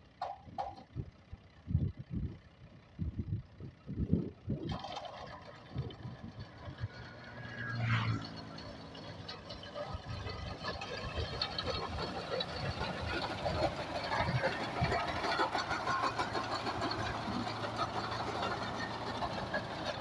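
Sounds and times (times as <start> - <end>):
tractor diesel engine: 0.0 - 20.0
reaper mechanical clatter: 3.8 - 20.0.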